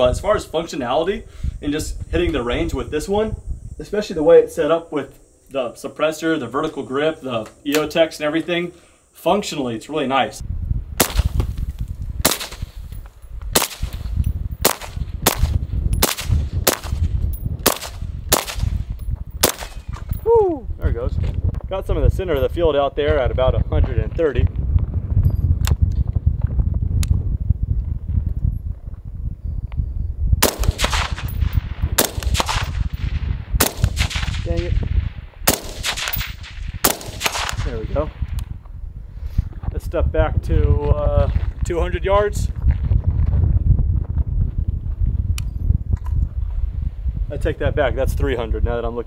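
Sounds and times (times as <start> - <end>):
suppressed rifle shots: 11.0 - 11.5, 12.2 - 12.8, 13.6 - 18.8, 19.4 - 20.0, 30.4 - 37.8.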